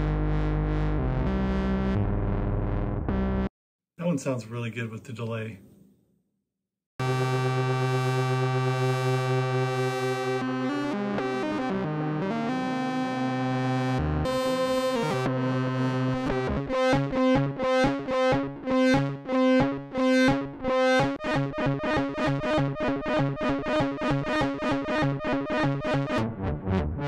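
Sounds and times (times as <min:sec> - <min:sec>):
synthesizer droning note: 0:07.0 - 0:27.0.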